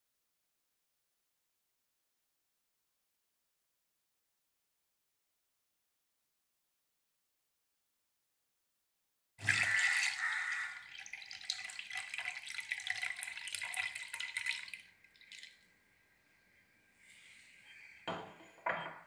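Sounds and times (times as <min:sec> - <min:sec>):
milk pouring into metal jar: 0:09.4 - 0:15.6.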